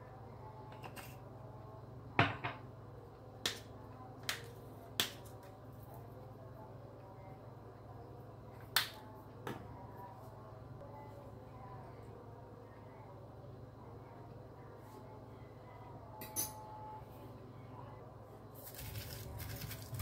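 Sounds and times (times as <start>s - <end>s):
spice jar shaken: 18.6s - 20.0s.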